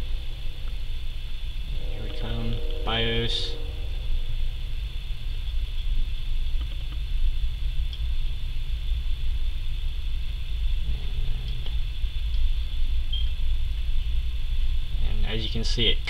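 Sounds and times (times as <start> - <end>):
computer fans humming: 0.0 - 16.0
thin high tone: 1.7 - 4.9.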